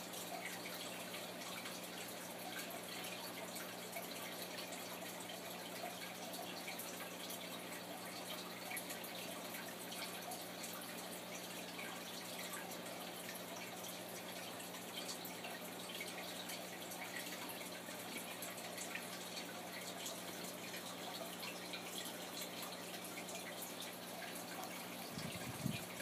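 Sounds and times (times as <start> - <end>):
aquarium water trickling and dripping: 0.0 - 26.0
low electric hum: 0.0 - 26.0.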